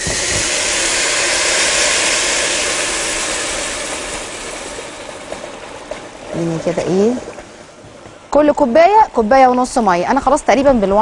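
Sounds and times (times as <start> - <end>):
water pouring into a pot: 0.0 - 7.3.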